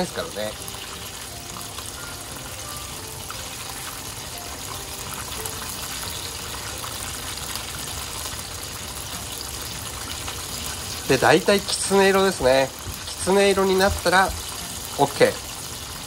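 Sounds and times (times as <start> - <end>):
chicken deep-frying in oil: 0.0 - 16.0.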